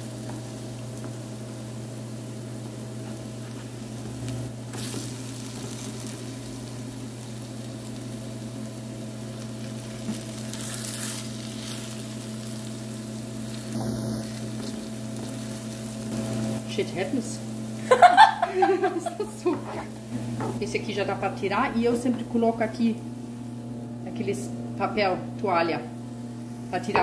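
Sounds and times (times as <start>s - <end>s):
pancakes sizzling in oil: 0.0s - 20.2s
steady low hum: 0.0s - 27.0s.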